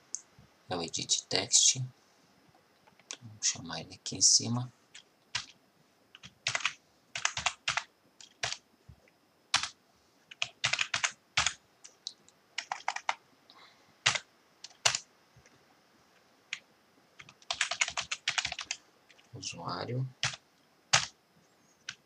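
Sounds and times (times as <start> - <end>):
typing on computer keyboard: 5.3 - 5.6, 6.2 - 8.6, 9.5 - 12.0, 12.6 - 13.2, 14.0 - 15.0, 17.2 - 19.2, 20.2 - 21.2.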